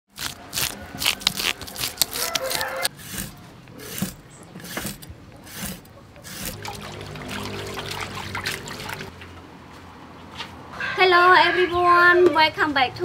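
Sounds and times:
knife scraping fish scales: 0.1 - 6.6
knife cutting fish flesh: 0.2 - 6.6.

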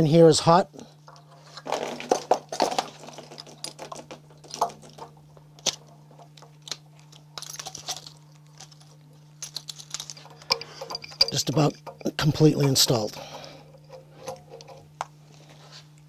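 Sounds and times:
metal clicks and scrapes: 5.6 - 15.0.

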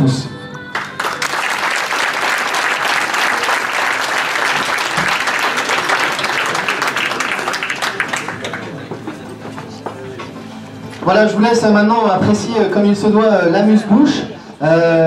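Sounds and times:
audience applauding: 0.7 - 10.3.

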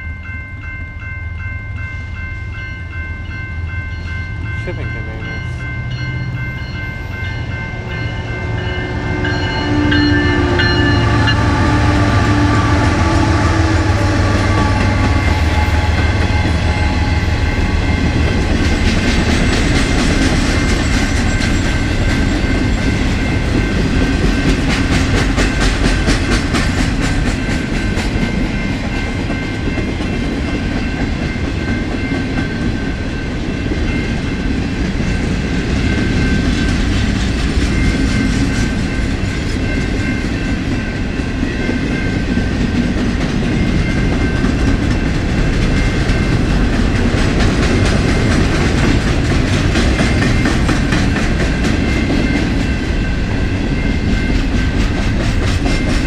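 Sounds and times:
diesel locomotive rumble: 2.9 - 56.0
train horn chord: 8.2 - 18.1
wheels clacking over rail joints: 42.7 - 52.7.

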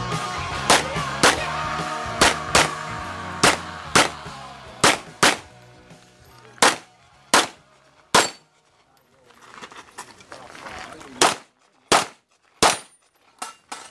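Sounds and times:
pistol shots: 0.7 - 1.4, 2.2 - 2.7, 3.4 - 4.2, 4.8 - 5.5, 6.6 - 8.4, 11.2 - 12.9.

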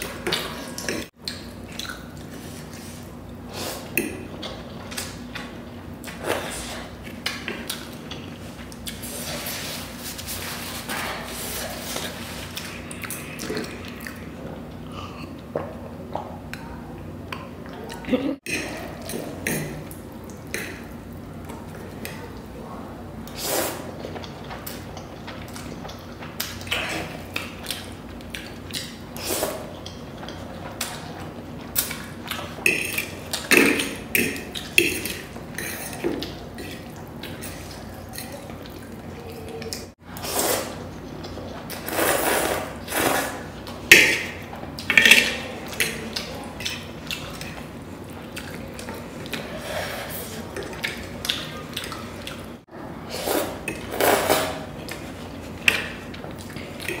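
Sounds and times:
noodles slurped and chewed: 23.2 - 43.9.

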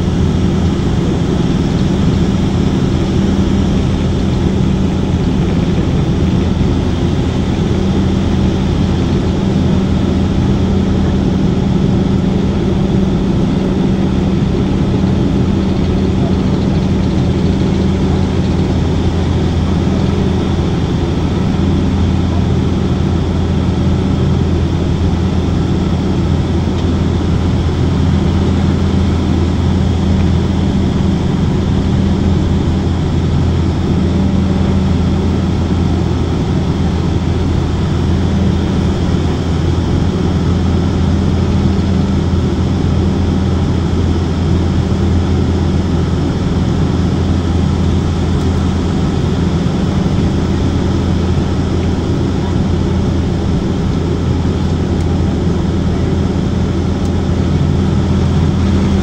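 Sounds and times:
propeller engines droning: 0.0 - 59.0.

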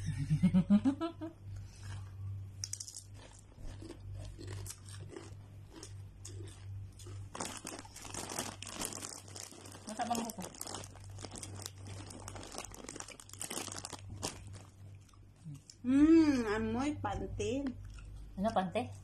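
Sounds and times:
steady low hum: 0.0 - 19.0
crunching chips: 1.7 - 15.8
foil bag crinkling: 7.0 - 14.9.

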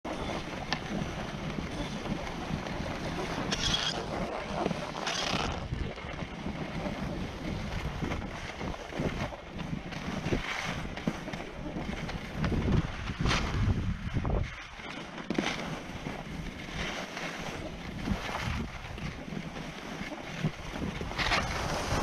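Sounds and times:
skis scraping over snow: 0.1 - 22.0
wind on microphone: 0.1 - 22.0.

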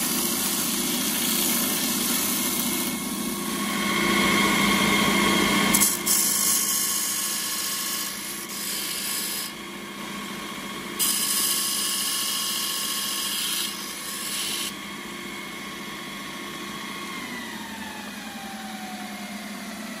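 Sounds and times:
belt grinder humming: 0.0 - 9.6, 11.0 - 14.7.

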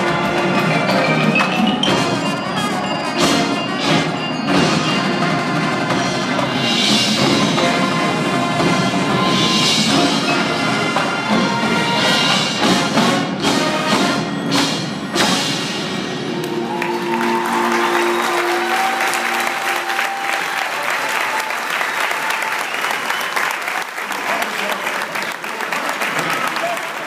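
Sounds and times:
marching band playing: 0.0 - 23.5
drums and percussion: 0.0 - 23.6.

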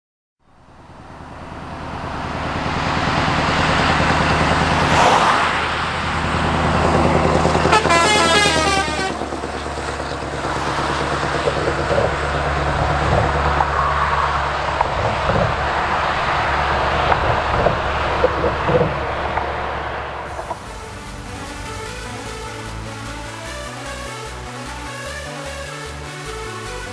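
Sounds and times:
truck engine driving past: 0.4 - 25.2
truck horn with wavering pitch: 5.5 - 26.9.

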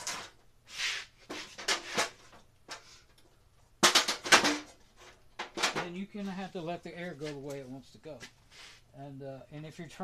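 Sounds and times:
hard objects knocking and clattering: 1.2 - 2.9, 3.8 - 6.1.

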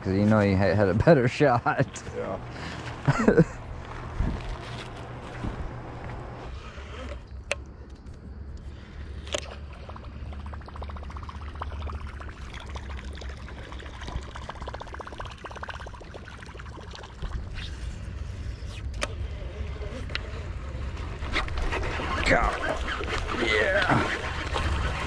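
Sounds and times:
lure plopping and gurgling on water: 9.2 - 17.5
fishing reel cranking: 21.2 - 25.0.

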